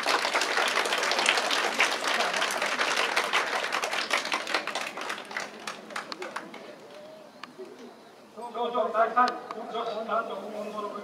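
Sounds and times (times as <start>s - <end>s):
people applauding: 0.0s - 7.0s.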